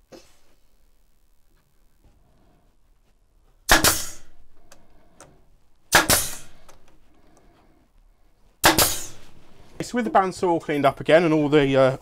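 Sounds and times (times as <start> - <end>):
nail gun firing into plywood: 3.7 - 4.3, 5.9 - 6.7, 8.6 - 9.2.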